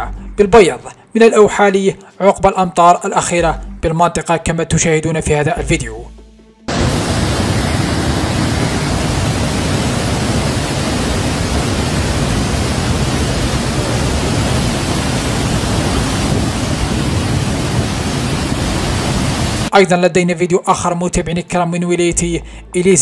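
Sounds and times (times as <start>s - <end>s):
water jetting with low rumble: 6.7s - 19.7s.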